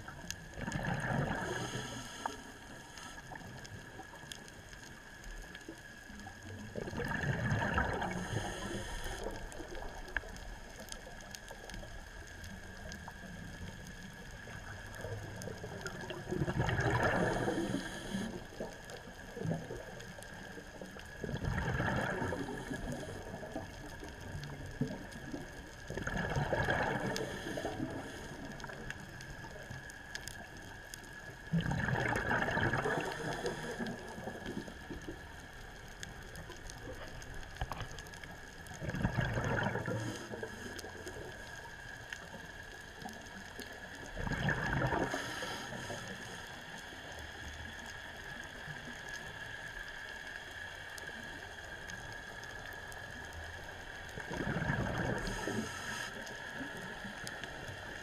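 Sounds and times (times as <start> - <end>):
faint steady hum: 0.0 - 58.0
diver exhaling bubbles underwater: 0.6 - 2.1, 6.8 - 9.4, 15.8 - 18.4, 21.2 - 23.6, 25.9 - 28.1, 31.5 - 34.7, 38.8 - 40.6, 44.1 - 46.0, 54.2 - 56.0.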